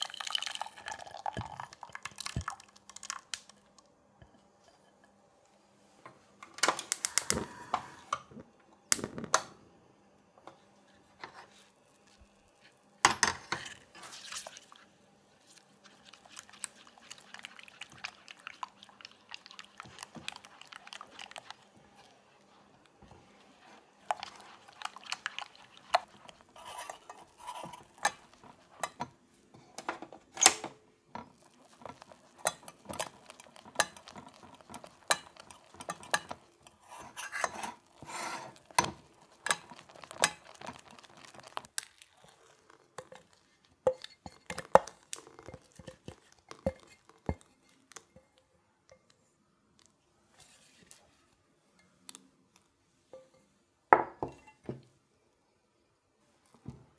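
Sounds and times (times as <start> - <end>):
spatula scraping saucepan: 13.2 - 29.9, 31.2 - 47.9.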